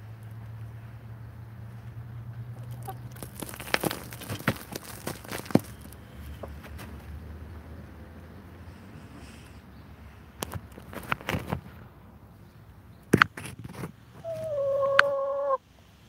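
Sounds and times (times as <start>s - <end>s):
chickens clucking: 2.6s - 5.6s, 6.2s - 6.9s, 14.2s - 15.6s.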